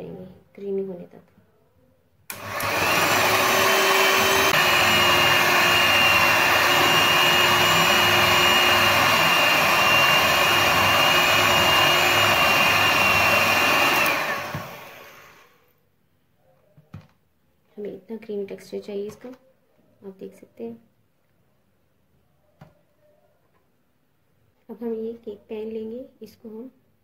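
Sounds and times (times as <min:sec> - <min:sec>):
electric hand mixer whining: 0:02.3 - 0:15.6.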